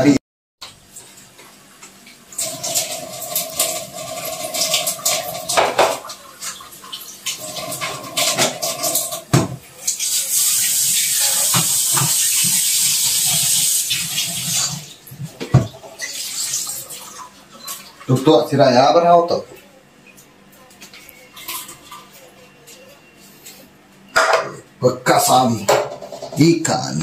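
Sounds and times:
tap running into sink: 1.4 - 6.6, 7.3 - 16.1
containers knocking and clattering: 2.4 - 6.2.

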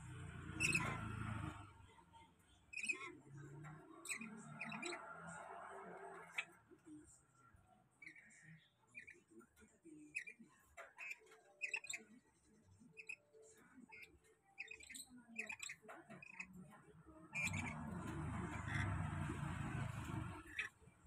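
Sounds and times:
parrot chirps and squawks: 0.4 - 1.9, 2.7 - 21.0.

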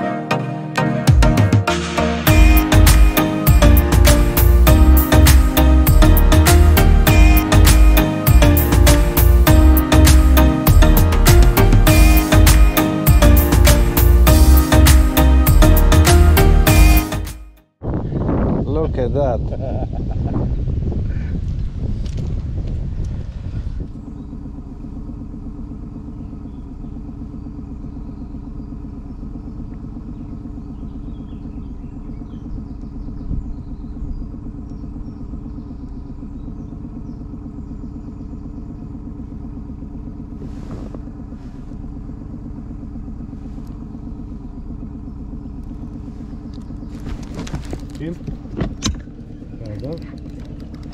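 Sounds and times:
engine running steadily: 1.0 - 50.9.

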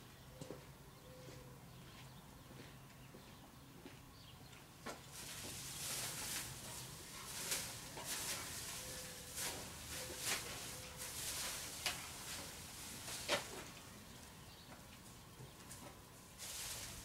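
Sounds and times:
plastic film rustling and crinkling: 5.1 - 13.9, 16.4 - 17.0.

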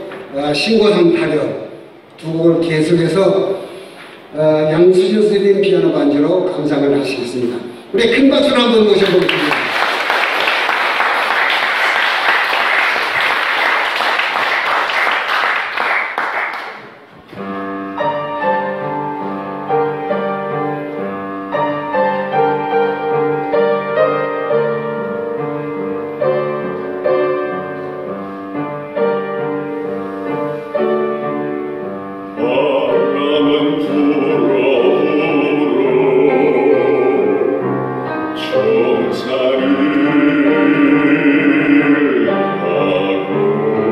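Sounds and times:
audience applauding: 9.0 - 17.1
upright piano playing: 16.8 - 43.9
bass singer singing: 32.4 - 37.6.

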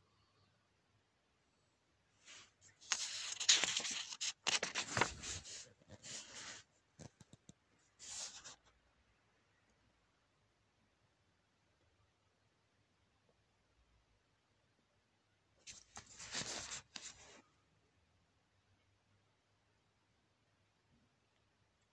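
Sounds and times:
book pages rustling: 2.3 - 8.6, 15.6 - 17.4.

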